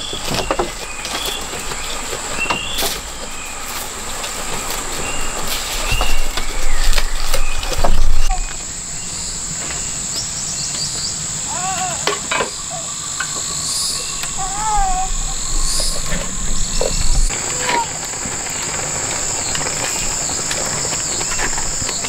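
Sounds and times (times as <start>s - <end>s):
insects droning: 0.0s - 22.0s
short arching calls: 4.6s - 18.7s.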